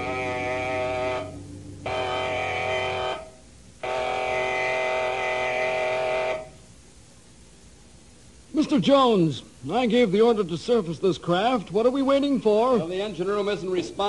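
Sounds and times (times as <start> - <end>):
buzzing alarm horn: 0.0 - 6.6.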